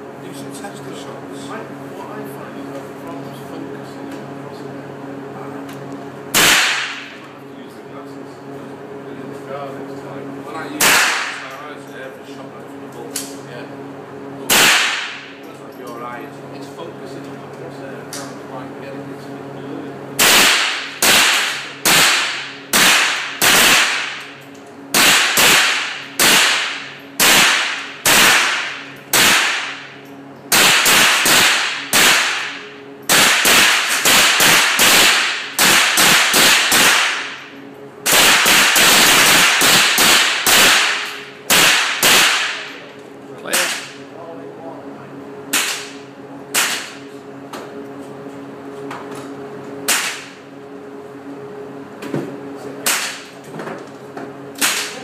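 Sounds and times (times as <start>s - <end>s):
rifle shots echoing: 6.4s - 7.1s, 14.5s - 15.2s, 20.2s - 24.3s, 25.0s - 29.9s, 30.5s - 37.4s, 38.1s - 42.6s.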